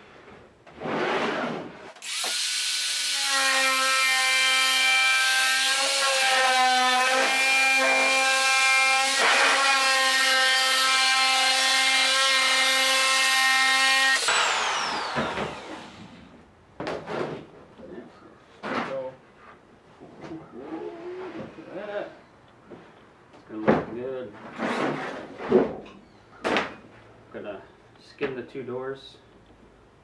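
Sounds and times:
electric cutting tool whining: 2.0s - 16.2s.

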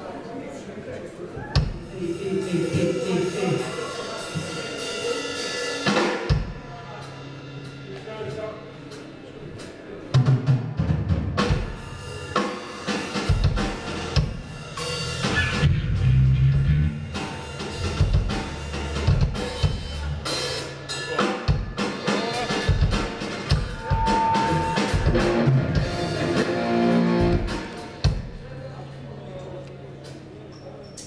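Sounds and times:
rock drum kit: 2.5s - 9.2s, 10.1s - 28.5s
low bass notes: 15.0s - 20.3s, 24.3s - 27.8s
short held tone: 23.8s - 25.1s.

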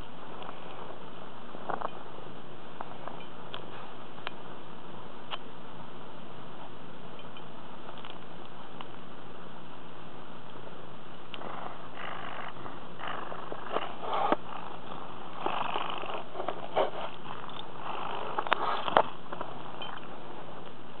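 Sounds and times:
cat purring: 11.3s - 20.4s
fur rubbing against microphone: 11.4s - 20.6s.

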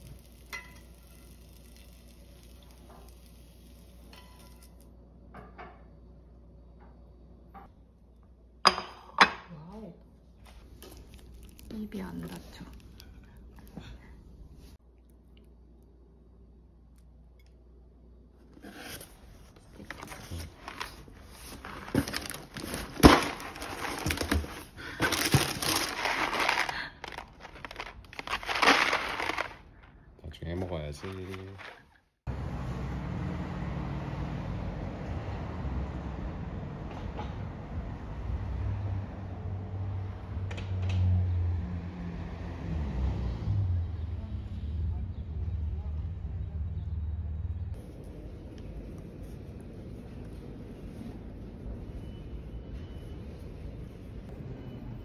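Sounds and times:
packing paper rustling: 18.8s - 32.0s.

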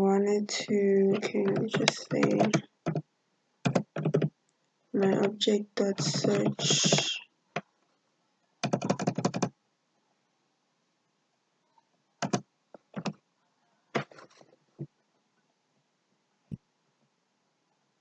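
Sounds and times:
keyboard keystrokes: 1.1s - 3.0s, 3.7s - 4.3s, 5.0s - 7.1s, 8.6s - 9.5s, 12.2s - 13.2s.

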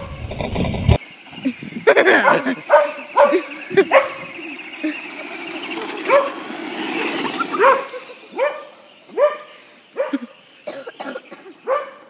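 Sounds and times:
rushing noise: 0.0s - 1.0s
dog barking: 2.2s - 4.3s, 6.1s - 6.4s, 7.5s - 10.3s, 11.6s - 12.0s.

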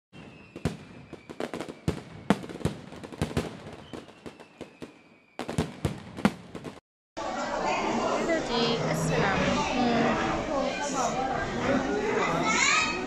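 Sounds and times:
faint firework whistle: 0.2s - 6.4s
fireworks cracking and popping: 0.2s - 6.8s.

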